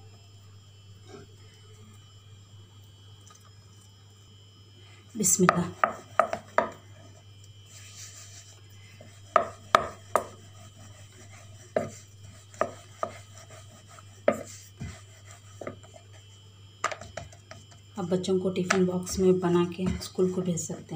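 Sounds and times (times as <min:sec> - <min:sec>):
faint steady hum: 0:00.0 - 0:20.9
rolling pin knocking on wooden board: 0:05.5 - 0:06.8, 0:09.3 - 0:10.4, 0:11.7 - 0:13.2, 0:15.6 - 0:15.9, 0:16.8 - 0:17.6.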